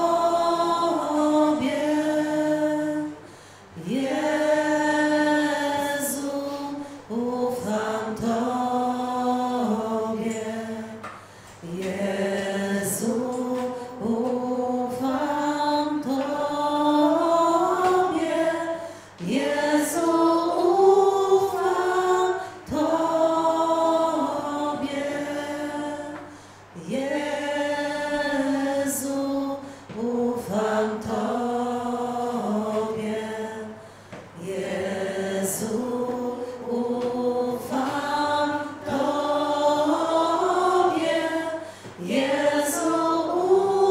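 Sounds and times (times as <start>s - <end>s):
group singing a hymn: 0.0s - 43.9s.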